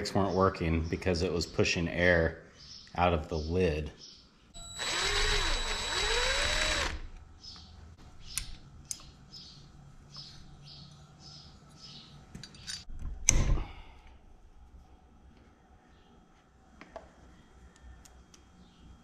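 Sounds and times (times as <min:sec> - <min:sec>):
small electric motor whirring: 0:04.6 - 0:07.2.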